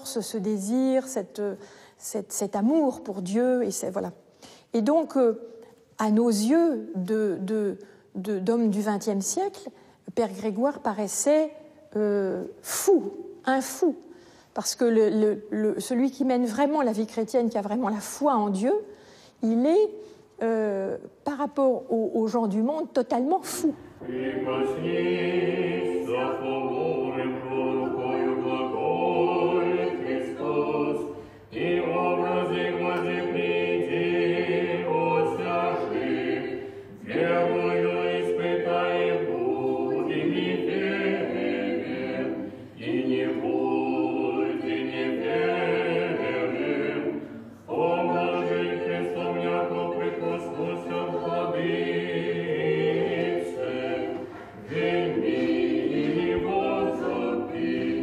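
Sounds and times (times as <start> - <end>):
choir chanting in held chords: 24.0 - 58.0.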